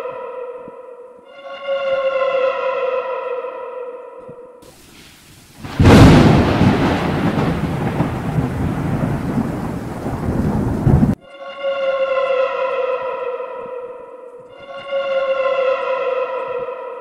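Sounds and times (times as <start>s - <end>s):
heavy rain: 4.6s - 11.2s
rumbling thunder: 4.7s - 11.2s
thunderclap: 4.7s - 11.2s.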